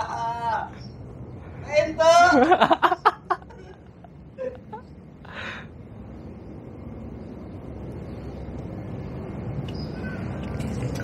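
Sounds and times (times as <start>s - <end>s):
low steady rumble: 0.0s - 9.7s.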